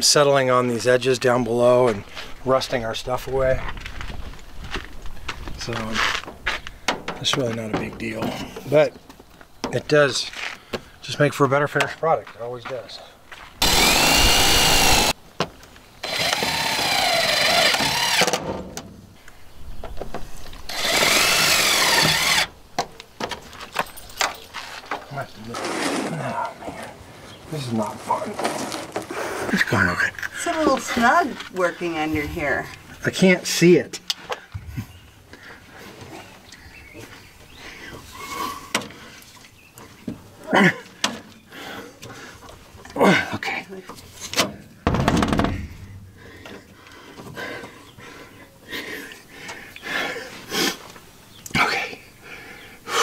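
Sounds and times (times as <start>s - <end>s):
cordless drill driving screws: 13.6s - 15.2s, 16.0s - 18.4s, 20.7s - 22.5s.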